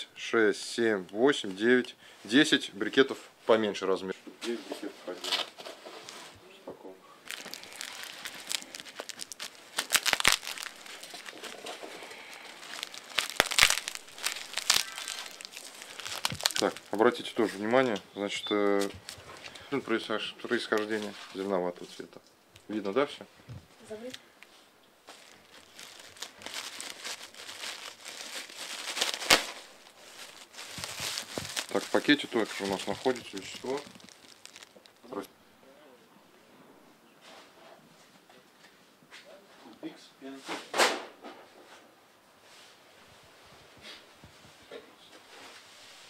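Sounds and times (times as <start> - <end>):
cling film crinkling and tearing: 7.2 - 17.9, 18.8 - 19.7, 24.0 - 35.3.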